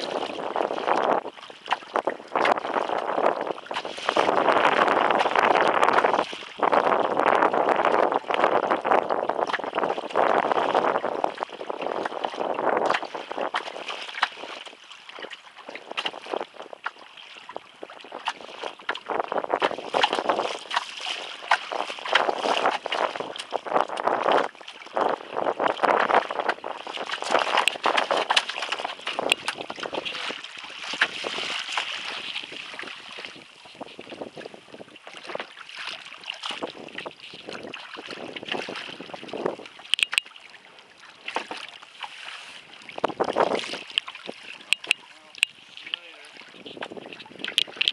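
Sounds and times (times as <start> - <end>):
wind buffeting microphone: 0.0 - 40.2, 40.9 - 47.9
water slapping against kayak hull: 0.0 - 47.9
small splashes: 26.1 - 33.4, 35.0 - 46.6.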